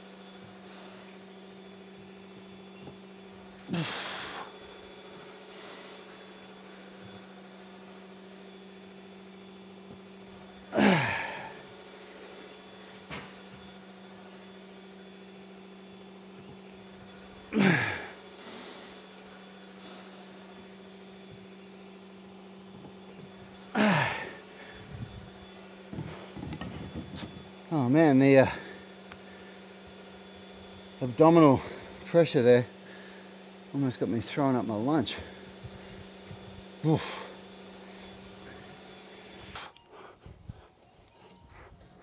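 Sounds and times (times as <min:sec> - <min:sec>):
steady low hum: 0:00.0 - 0:42.0
man exhaling with effort: 0:03.6 - 0:04.6, 0:10.7 - 0:12.2, 0:17.5 - 0:19.1, 0:23.7 - 0:24.9.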